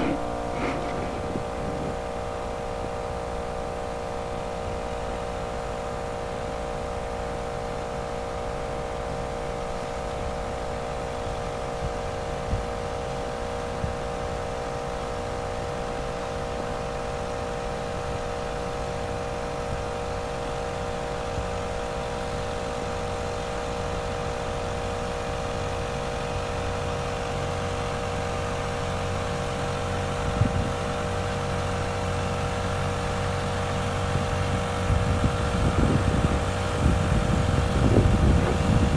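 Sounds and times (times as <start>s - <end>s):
tractor engine droning: 0.0s - 3.6s, 28.9s - 38.9s.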